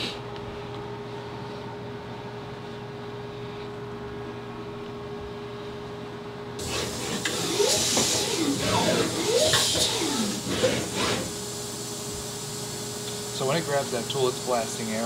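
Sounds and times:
machine hum with faint tone: 0:00.0 - 0:15.0
compressed air hissing: 0:06.6 - 0:14.0.

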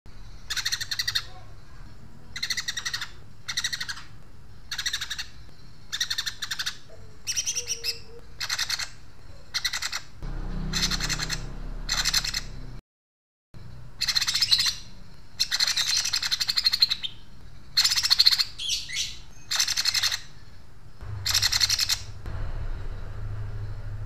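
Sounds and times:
bird chattering in bursts: 0:00.4 - 0:01.4, 0:02.4 - 0:10.1, 0:10.7 - 0:12.6, 0:14.0 - 0:20.4, 0:21.1 - 0:22.2.

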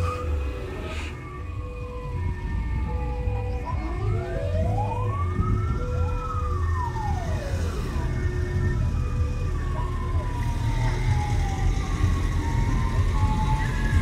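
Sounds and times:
emergency sirens wailing: 0:00.0 - 0:14.0.

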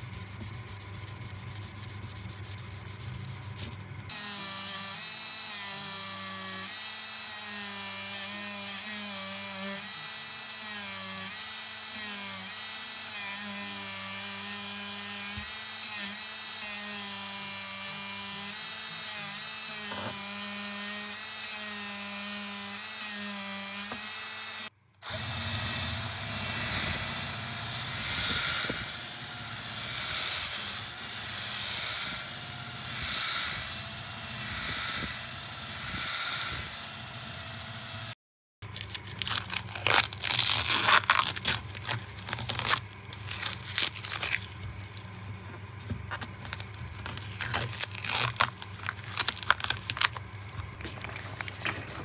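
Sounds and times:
buffing wheel polishing: 0:00.0 - 0:03.9, 0:25.1 - 0:37.9
rotary tool whining on metal: 0:00.0 - 0:38.2
paper crinkling and tearing: 0:38.7 - 0:45.4, 0:46.0 - 0:52.0.

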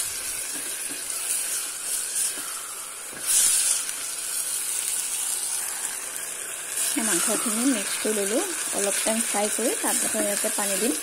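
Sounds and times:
meat and onions sizzling in oil: 0:00.0 - 0:11.0.

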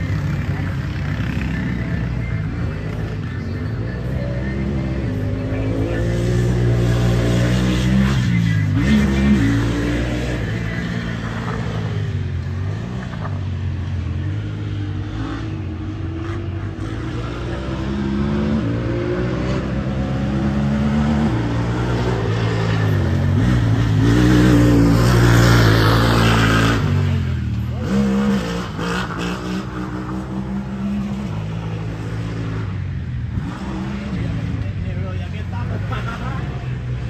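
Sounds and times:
vehicle engine revving: 0:00.0 - 0:37.0.

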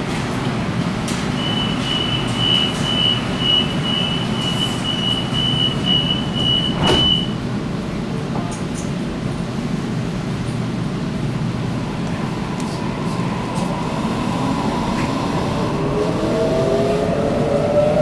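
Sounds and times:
train low hum: 0:00.0 - 0:18.0
train doors shutting with thud: 0:00.1 - 0:07.6
high warning beeps: 0:01.4 - 0:07.4.

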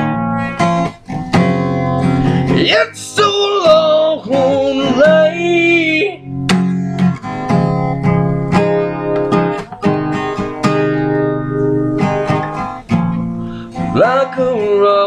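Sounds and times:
acoustic guitar strumming: 0:00.0 - 0:15.0.

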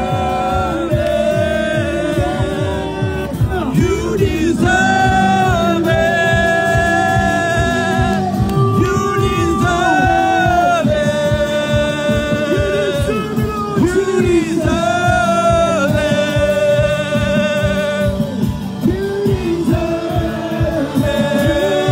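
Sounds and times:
worship band playing: 0:00.0 - 0:21.9.

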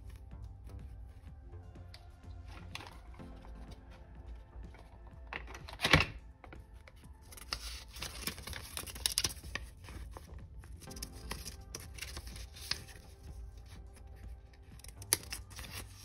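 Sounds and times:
book pages turning: 0:01.8 - 0:16.0
paper rustle: 0:02.4 - 0:06.0, 0:06.8 - 0:16.0.

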